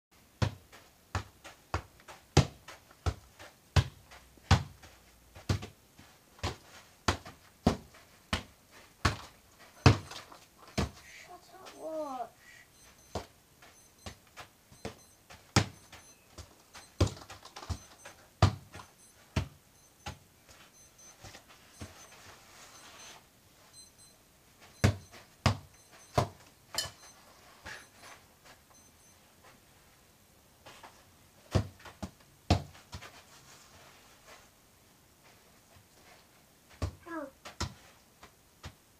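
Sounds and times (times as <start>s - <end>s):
boot thumping football: 0.4s - 5.8s, 6.4s - 11.0s, 14.8s - 16.0s, 16.8s - 20.2s, 24.8s - 26.4s.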